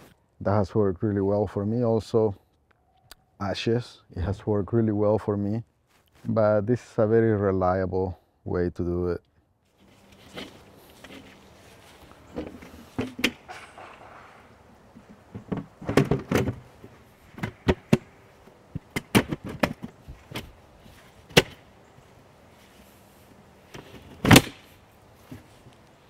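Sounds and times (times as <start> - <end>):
clamp ring snapping shut: 13.0 - 14.5.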